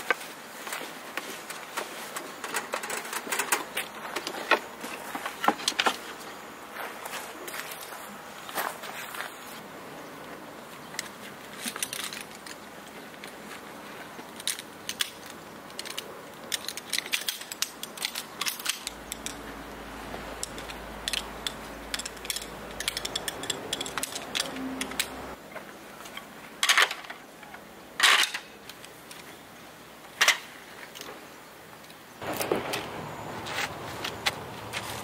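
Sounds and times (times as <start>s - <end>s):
metal frame poles clicking: 1.4s - 6.4s, 14.3s - 25.4s.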